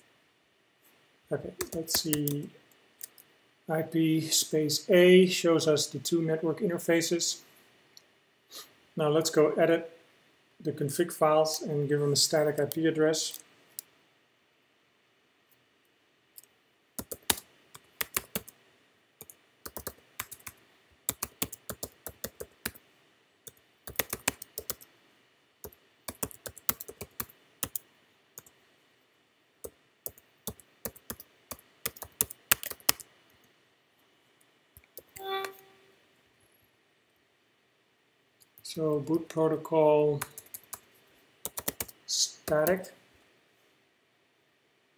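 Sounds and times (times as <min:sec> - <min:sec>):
computer keyboard typing: 0:01.6 - 0:02.4, 0:17.0 - 0:18.6, 0:19.2 - 0:22.8, 0:23.5 - 0:24.9, 0:25.6 - 0:27.8, 0:29.6 - 0:33.1, 0:40.2 - 0:40.8, 0:41.4 - 0:42.8.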